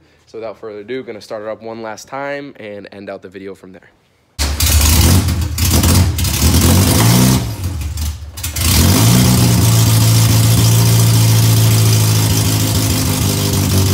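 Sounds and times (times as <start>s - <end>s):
car engine revving and idling: 4.4s - 13.9s.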